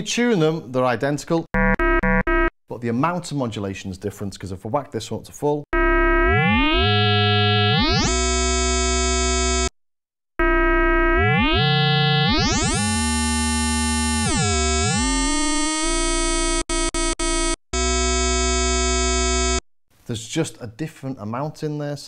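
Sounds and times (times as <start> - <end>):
synthesizer held note sweeping: 10.4 - 19.6.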